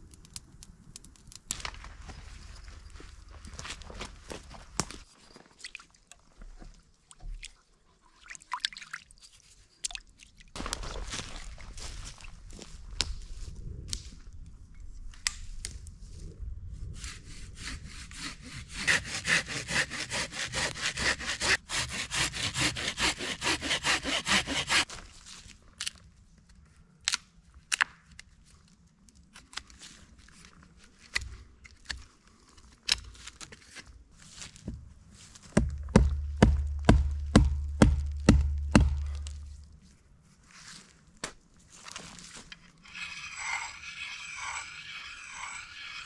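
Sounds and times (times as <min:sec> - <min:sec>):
hand saw cutting wood: 0:17.0 - 0:24.9, 0:42.8 - 0:46.0
regular loud knocks: 0:35.6 - 0:39.1.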